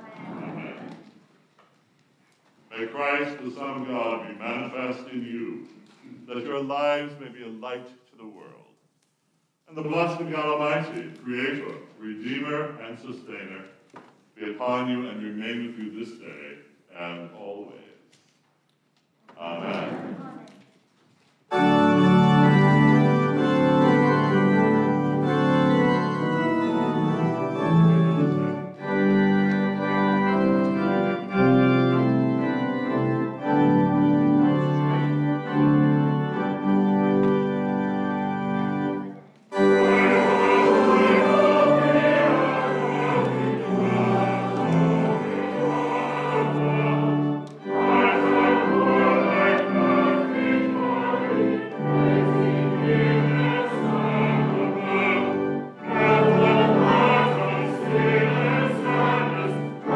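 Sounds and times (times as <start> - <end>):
church organ playing a hymn: 2.7 - 8.4, 9.7 - 13.7, 14.4 - 17.8, 21.5 - 59.9
voices singing a hymn: 19.4 - 20.4, 21.5 - 31.4, 38.8 - 59.9.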